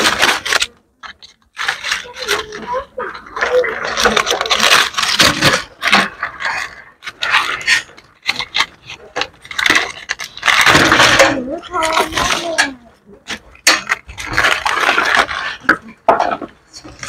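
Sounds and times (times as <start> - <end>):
scraping and rubbing: 0.0 - 17.0
dry leaves rustling and crackling: 3.4 - 12.6.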